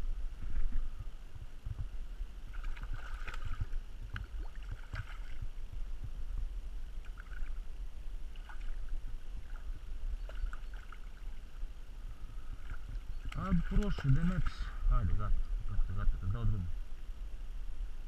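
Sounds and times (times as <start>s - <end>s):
wind rumble on microphone: 0.0s - 18.0s
fish splashing in water: 2.5s - 5.4s.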